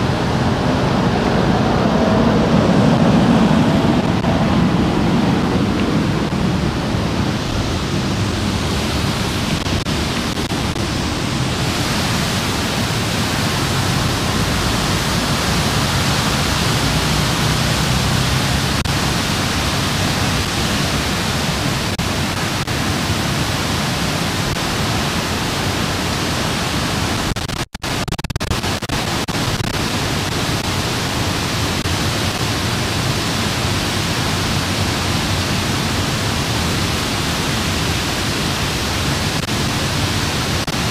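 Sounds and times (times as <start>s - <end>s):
fountain water splashing into basin: 5.9s - 27.1s.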